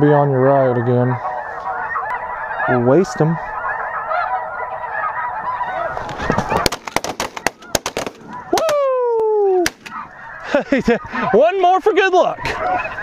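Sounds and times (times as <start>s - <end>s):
snow geese calling: 0.0s - 13.0s
shotgun shots: 6.5s - 8.4s, 9.6s - 9.9s
long falling cry: 8.5s - 9.6s.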